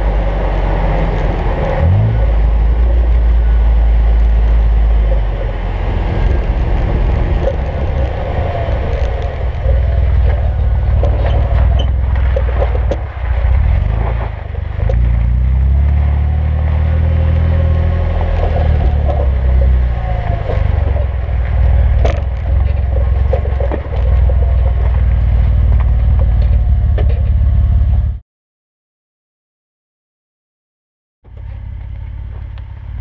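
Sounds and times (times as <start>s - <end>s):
deep exhaust rumble: 0.0s - 28.2s, 31.3s - 33.0s
road and wind noise: 0.0s - 28.2s, 31.2s - 33.0s.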